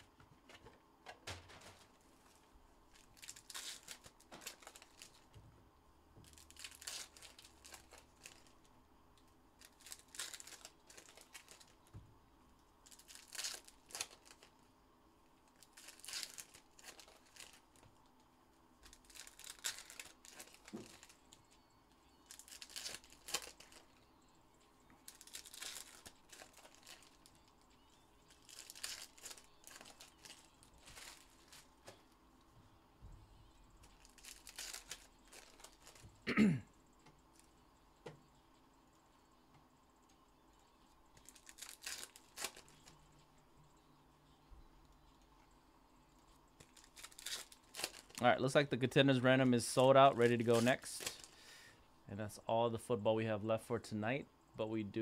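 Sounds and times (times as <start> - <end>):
foil wrappers crinkling and tearing: 1.4 - 5.3, 6.2 - 8.7, 9.6 - 11.9, 12.8 - 14.6, 15.5 - 17.9, 18.8 - 21.4, 22.2 - 23.9, 25.0 - 27.6, 28.3 - 31.9, 33.8 - 36.1, 41.2 - 43.0, 46.6 - 48.7, 49.6 - 51.4.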